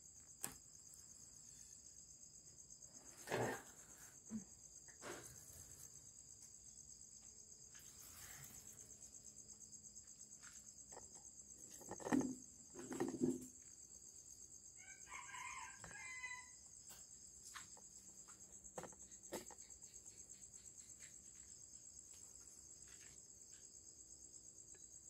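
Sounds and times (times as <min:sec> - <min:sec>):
crickets chirring: 0:00.0 - 0:25.0
containers clunking on table: 0:11.7 - 0:13.6
rooster crowing: 0:14.8 - 0:16.7.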